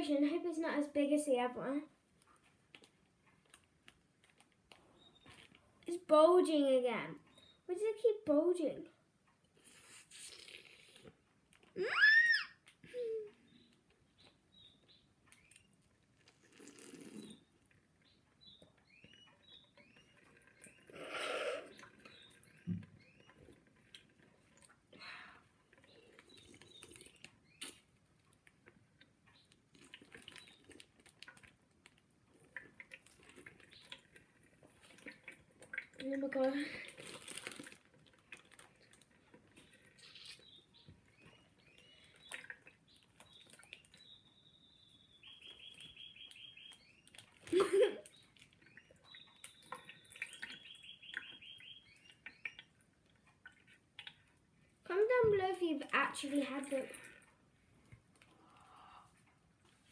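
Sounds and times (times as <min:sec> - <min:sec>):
plastic bag crinkling and squeaking: 0:02.2 - 0:05.7, 0:25.7 - 0:28.4, 0:29.4 - 0:44.1, 0:45.5 - 0:51.3
plastic bag crinkling and clicking: 0:29.4 - 0:34.2, 0:36.8 - 0:40.4.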